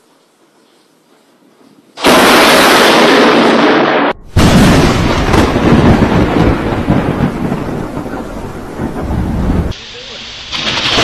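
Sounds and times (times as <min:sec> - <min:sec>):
thunderclaps rumbling: 0:02.0 - 0:09.8, 0:10.4 - 0:11.0.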